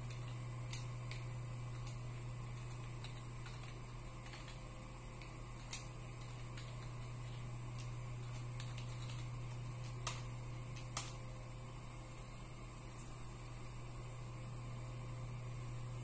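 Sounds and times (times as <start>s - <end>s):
computer keyboard keystrokes: 0.0s - 4.6s, 5.2s - 11.2s
steady low hum: 0.0s - 16.0s.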